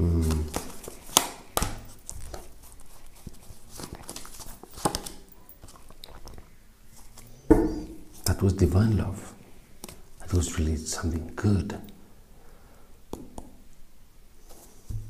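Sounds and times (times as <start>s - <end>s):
cards shuffling and rustling: 0.1s - 7.3s
card snaps and slaps: 0.5s - 1.9s.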